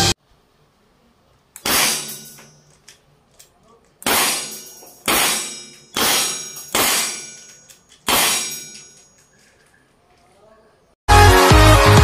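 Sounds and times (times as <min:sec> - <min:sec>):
revolver gunshots: 0:01.6 - 0:02.4, 0:04.0 - 0:07.5, 0:08.1 - 0:08.8.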